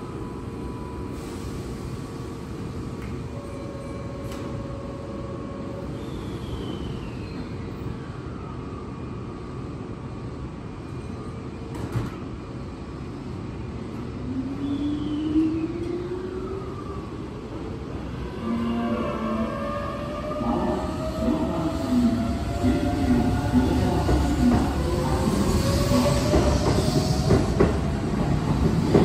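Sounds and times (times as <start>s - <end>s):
train rumble: 18.0s - 29.0s.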